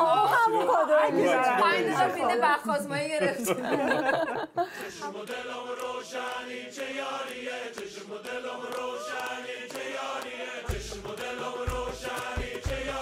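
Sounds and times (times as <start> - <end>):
song with singing over a beat: 4.8 - 13.0.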